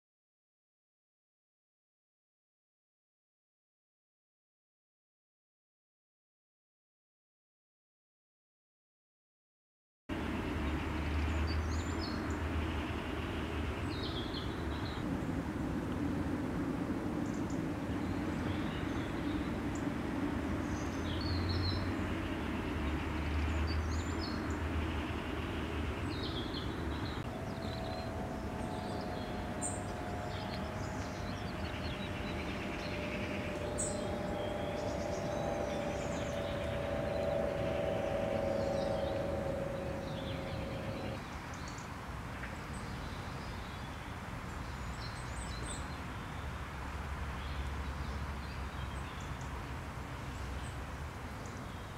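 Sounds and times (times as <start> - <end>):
steady hum: 10.1 - 41.5
distant traffic rumble: 10.1 - 51.9.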